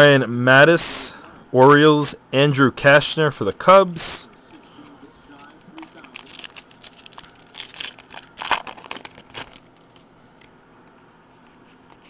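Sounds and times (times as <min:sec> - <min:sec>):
foil wrapper tearing and crinkling: 0:05.8 - 0:10.1.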